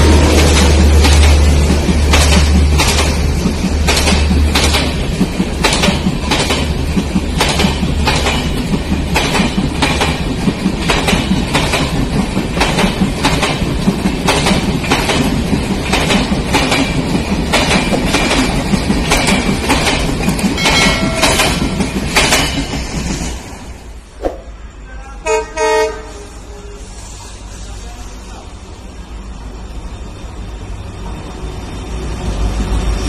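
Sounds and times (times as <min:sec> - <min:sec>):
wheels clacking over rail joints: 0:00.0 - 0:23.5
passenger train running past: 0:00.0 - 0:33.0.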